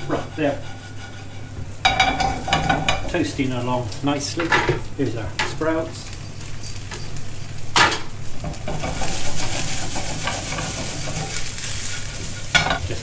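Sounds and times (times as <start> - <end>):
utensil knocking on pan: 0.0 - 3.2
sprouts sizzling in a pan: 0.1 - 4.6, 5.3 - 13.0.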